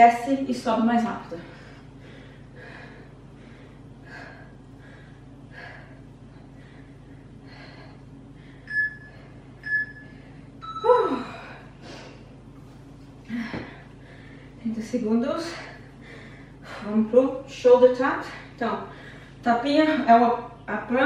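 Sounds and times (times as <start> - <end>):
woman breathing hard: 1.4 - 12.4, 13.2 - 14.6, 15.4 - 17.0, 18.2 - 19.4
short beeps: 8.7 - 11.1
woman groaning: 10.8 - 11.4.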